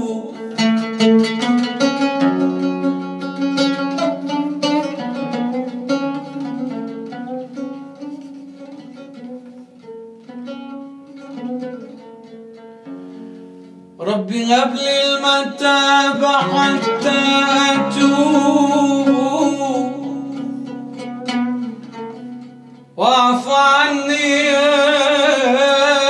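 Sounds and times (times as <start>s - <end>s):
devotional song with wavering vocals: 0.0s - 0.8s, 14.0s - 20.7s, 22.9s - 26.0s
plucked string notes: 0.0s - 26.0s.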